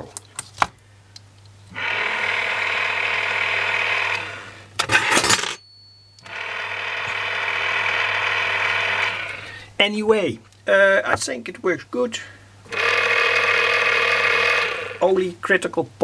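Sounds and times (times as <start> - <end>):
antenna rotor motor turning gears: 1.7 - 4.4, 6.2 - 9.4, 12.7 - 15.1.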